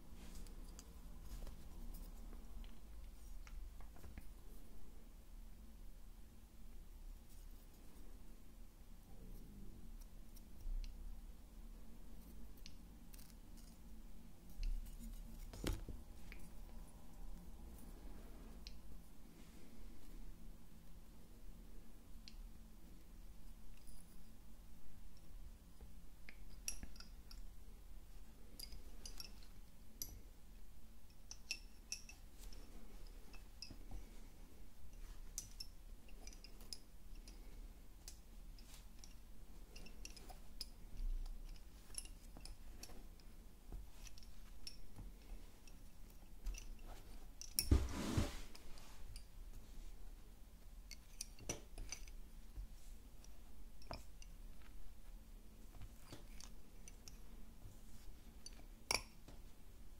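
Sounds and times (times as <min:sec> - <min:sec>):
rustling noise: 0:00.0 - 0:04.9, 0:32.2 - 0:50.4.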